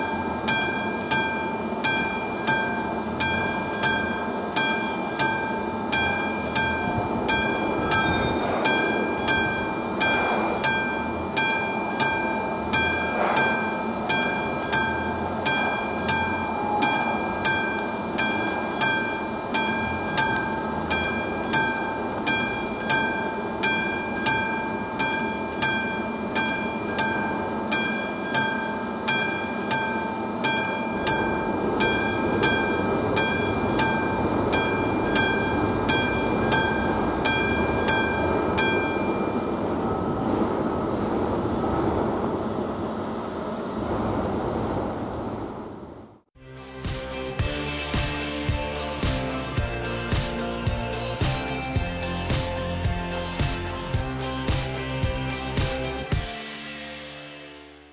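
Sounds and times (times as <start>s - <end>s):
mechanical crossing bell ringing: 0.0s - 40.2s.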